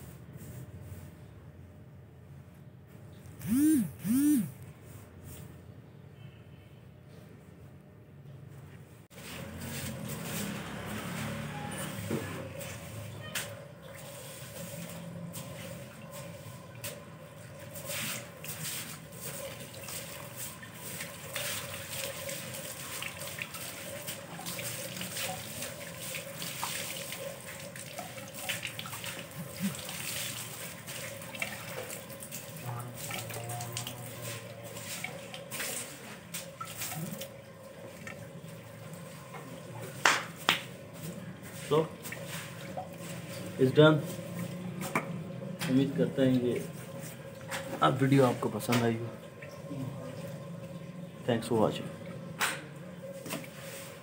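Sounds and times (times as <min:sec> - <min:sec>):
water pouring onto soil: 0:17.7 - 0:37.4.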